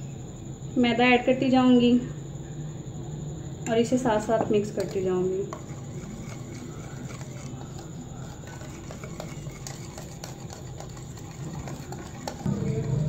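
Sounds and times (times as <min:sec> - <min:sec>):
low steady hum: 0:00.0 - 0:13.0
whisk clicking against bowl: 0:04.8 - 0:12.8
whisk stirring batter: 0:04.8 - 0:13.0.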